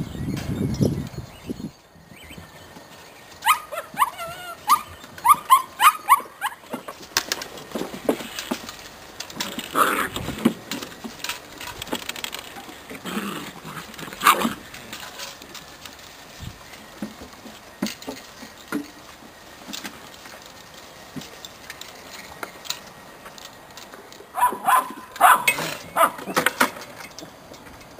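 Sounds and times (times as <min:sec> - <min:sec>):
puppies whimpering and yelping: 0:03.4 - 0:06.8.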